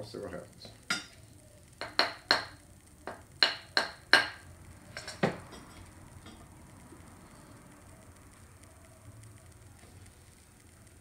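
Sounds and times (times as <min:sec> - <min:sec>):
wooden block knocking on metal: 0:01.8 - 0:04.4.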